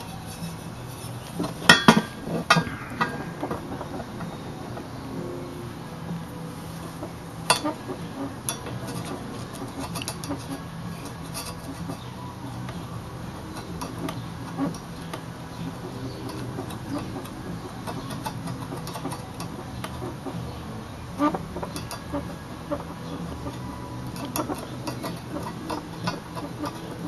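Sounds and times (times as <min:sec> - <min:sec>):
metal tube clicks and scratches: 0:00.0 - 0:04.4, 0:08.4 - 0:20.4, 0:21.2 - 0:22.3, 0:23.3 - 0:27.0
steady low hum: 0:00.0 - 0:27.0.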